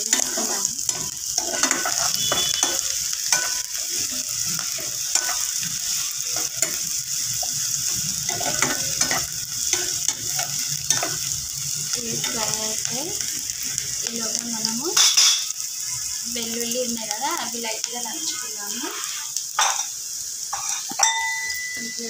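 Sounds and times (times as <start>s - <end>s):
metal spoon scraping pan: 0.0s - 11.3s, 18.2s - 21.2s
onions sizzling in hot oil: 0.0s - 22.0s.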